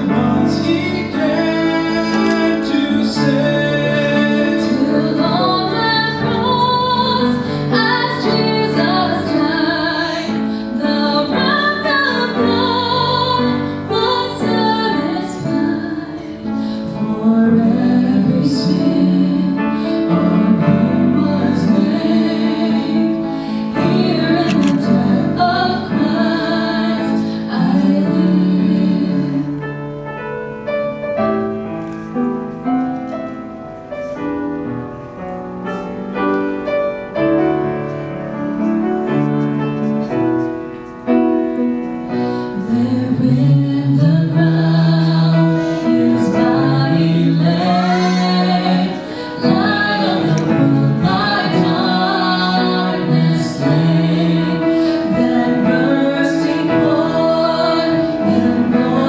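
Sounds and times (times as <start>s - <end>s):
man and woman singing duet: 0.0s - 29.6s, 42.3s - 59.0s
piano accompaniment: 0.0s - 59.0s.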